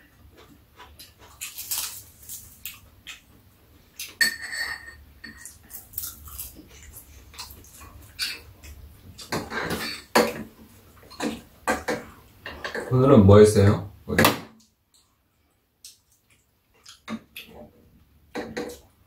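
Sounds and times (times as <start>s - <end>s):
utensils clicking and scraping bowls: 4.0s - 7.0s.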